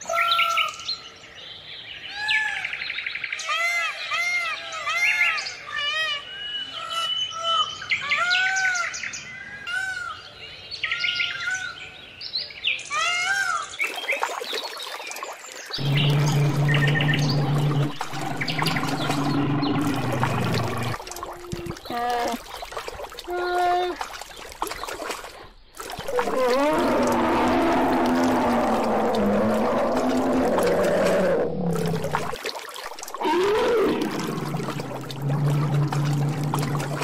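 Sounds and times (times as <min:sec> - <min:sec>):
small birds chirping: 0:13.6 - 0:27.2
low droning noise: 0:15.8 - 0:21.0, 0:33.2 - 0:37.0.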